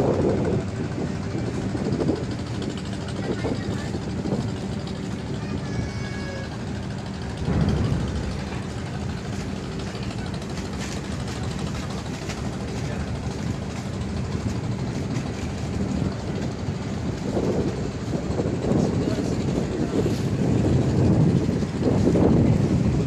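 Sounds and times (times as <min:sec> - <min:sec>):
ferry engines droning: 0:00.0 - 0:23.0.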